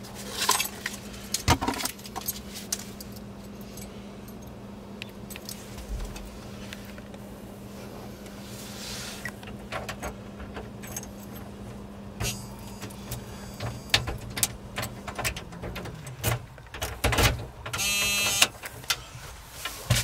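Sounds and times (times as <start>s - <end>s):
keys jangling: 0.3s - 4.6s, 10.7s - 11.5s.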